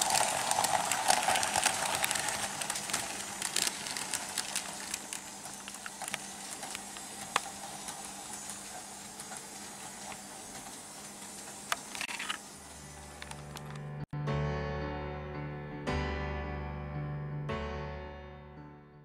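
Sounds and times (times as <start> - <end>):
model train wheels clicking on rails: 0.0 - 12.4.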